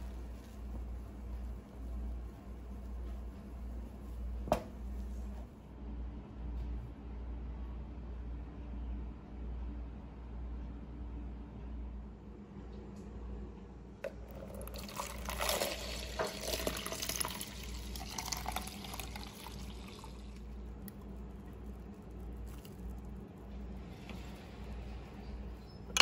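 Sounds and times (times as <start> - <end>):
milk pouring into a plastic tub: 14.1 - 21.4.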